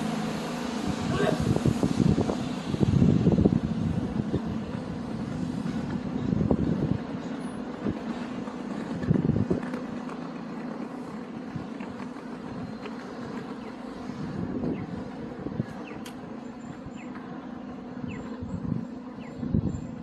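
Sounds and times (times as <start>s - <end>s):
vehicles passing on road: 0.0s - 20.0s.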